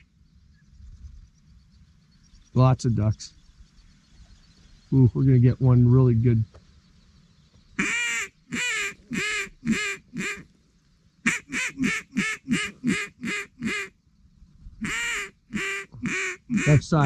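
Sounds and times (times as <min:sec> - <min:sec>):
duck call quacking: 0:07.8 - 0:10.4, 0:11.2 - 0:13.9, 0:14.8 - 0:17.0.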